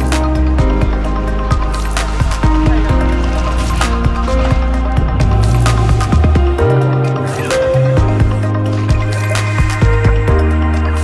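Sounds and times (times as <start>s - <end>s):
deep bass: 0.0s - 9.2s
sustained synth notes: 2.7s - 8.7s
drum beat: 4.2s - 6.9s.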